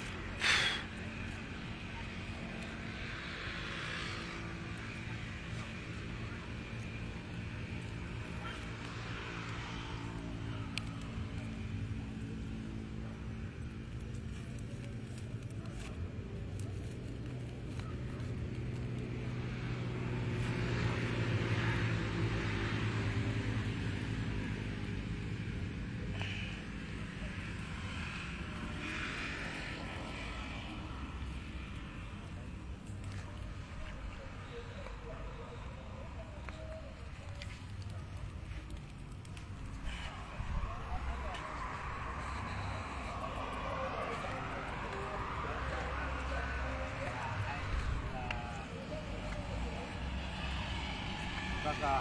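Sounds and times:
road traffic hum: 0.0s - 52.0s
vehicle passing close: 17.8s - 52.0s.

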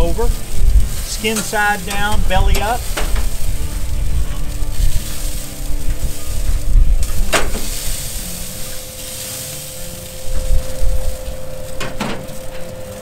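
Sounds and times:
chickens sizzling on grill: 0.0s - 13.0s
low rumble: 0.0s - 13.0s.

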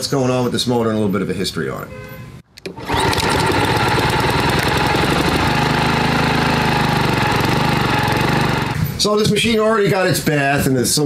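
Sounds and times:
lawn mower engine running: 2.6s - 8.8s.

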